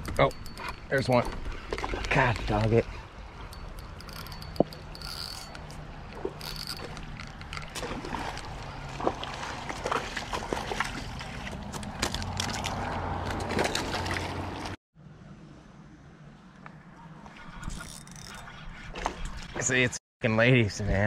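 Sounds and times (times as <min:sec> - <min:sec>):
sharp ticks: 0:00.0 - 0:01.2, 0:03.5 - 0:05.8.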